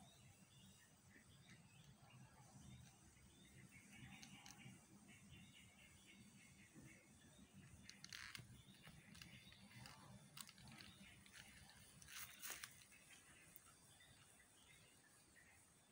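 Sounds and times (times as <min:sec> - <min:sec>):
soft crackles or scuffs: 0:07.9 - 0:13.6.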